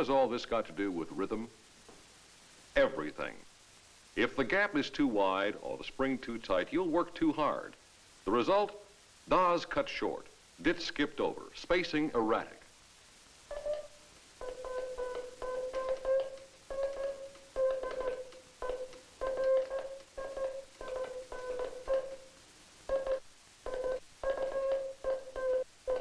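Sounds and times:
morse code tone: 13.5 - 22.3, 22.9 - 26.0.

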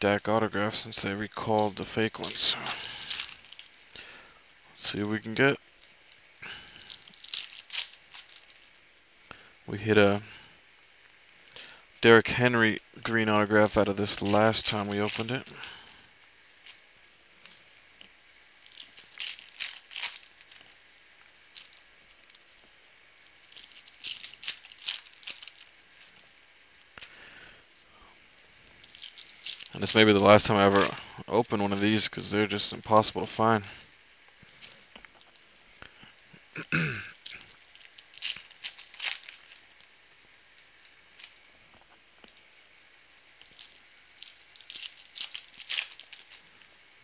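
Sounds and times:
light clicks and rustles: 0.0 - 4.1, 4.8 - 8.9, 11.0 - 16.0, 16.6 - 36.4, 37.1 - 39.9, 40.5 - 46.7
foil wrapper crinkling: 0.0 - 47.0.

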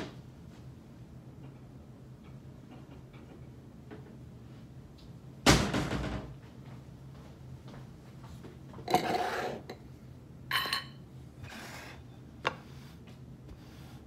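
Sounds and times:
low steady hum: 0.0 - 14.0
wooden spoon scraping skillet: 8.9 - 9.8.

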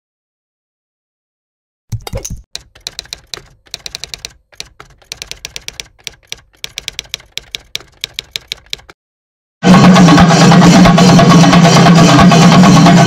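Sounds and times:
typewriter key clicks: 1.9 - 9.0.

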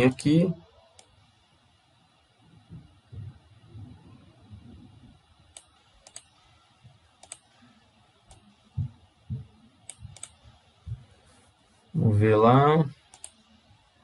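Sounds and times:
dull low thumps: 2.5 - 5.3, 8.7 - 11.2
computer mouse clicks: 5.5 - 6.4, 7.2 - 7.6, 9.8 - 10.4, 13.0 - 13.5.

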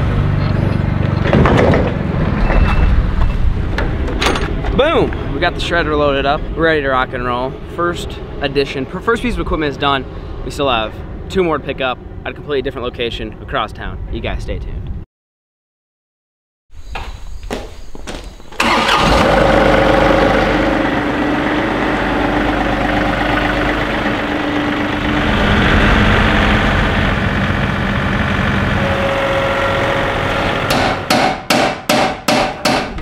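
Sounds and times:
diesel tractor engine running: 18.6 - 31.1.

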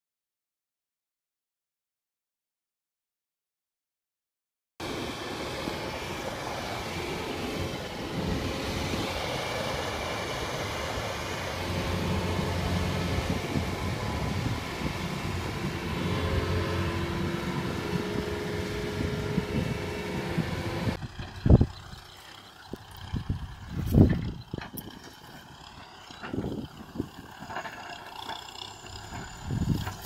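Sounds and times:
combine harvester diesel engine: 4.8 - 30.0.

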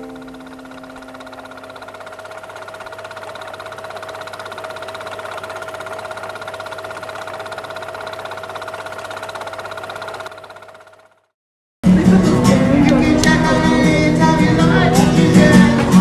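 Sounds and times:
held tone: 0.0 - 5.0
film projector whirring and clattering: 0.0 - 11.3, 12.2 - 16.0.

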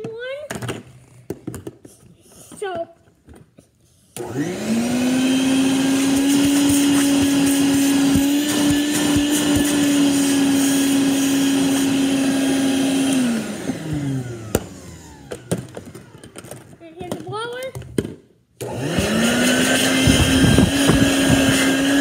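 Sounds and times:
vacuum motor whining: 4.2 - 16.8, 18.6 - 22.0.

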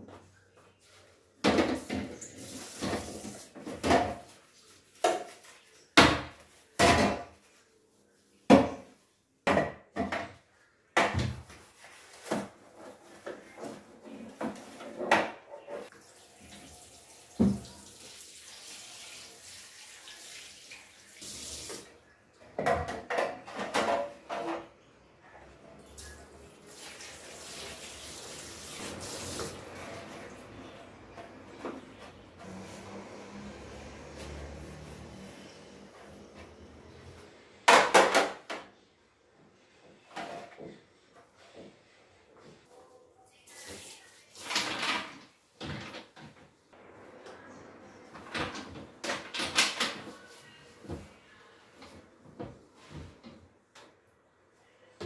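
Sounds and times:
knocks and clatters in sink: 1.4 - 4.4, 5.0 - 7.4, 8.5 - 10.4, 22.4 - 24.7, 37.7 - 38.7
tap water running: 1.5 - 4.3, 15.9 - 22.0, 26.0 - 30.4.

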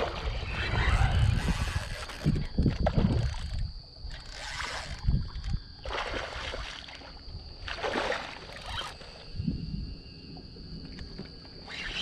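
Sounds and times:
low wind rumble: 0.0 - 6.3, 8.6 - 12.0.

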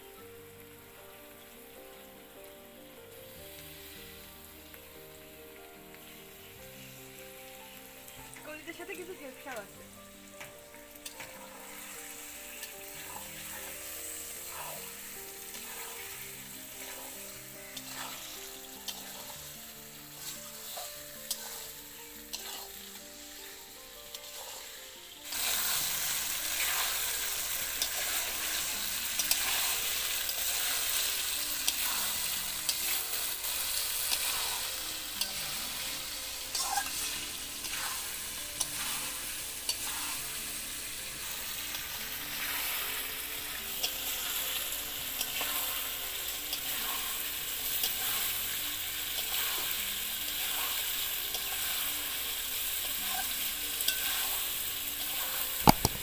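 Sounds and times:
liver frying in oil: 0.0 - 56.0
spatula scraping a pan: 11.0 - 23.4, 24.1 - 44.4, 45.1 - 56.0.

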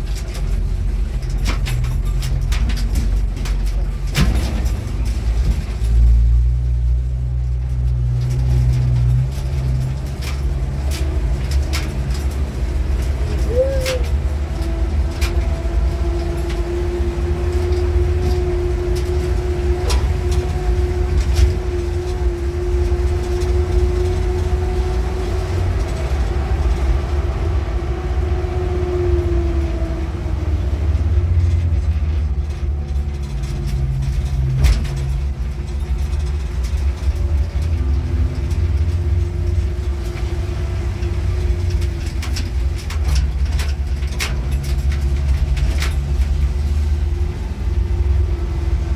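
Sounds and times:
vehicle engine and road rumble: 0.0 - 48.9
whining tone: 13.0 - 30.7.

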